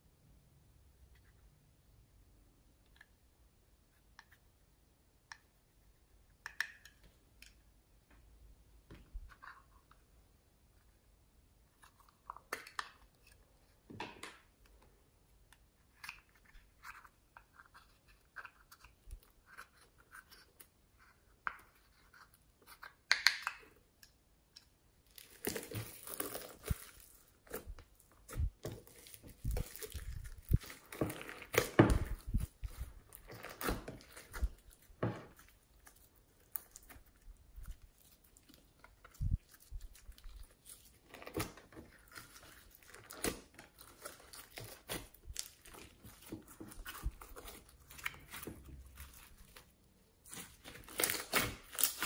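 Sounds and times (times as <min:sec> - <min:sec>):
hand squishing slime: 0:25.1 - 0:52.0.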